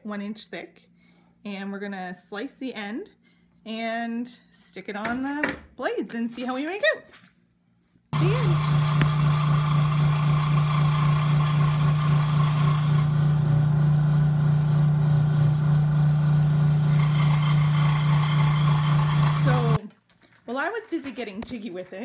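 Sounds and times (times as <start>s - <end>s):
power saw cutting plywood: 8.2s - 19.8s.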